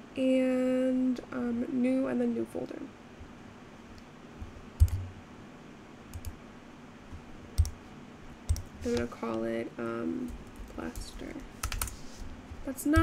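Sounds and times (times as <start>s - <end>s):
faint room hiss: 0.0s - 13.0s
computer mouse clicking: 4.8s - 5.0s, 6.1s - 6.4s, 7.1s - 7.8s, 10.3s - 12.0s.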